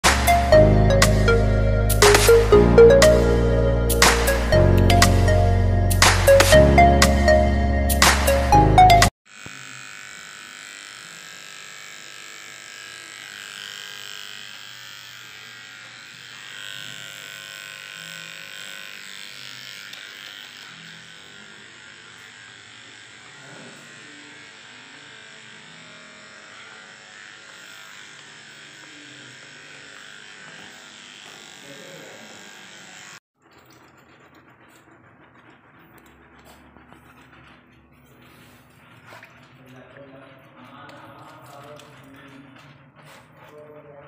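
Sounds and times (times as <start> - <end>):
electric hair clippers buzzing: 0.0 - 33.2.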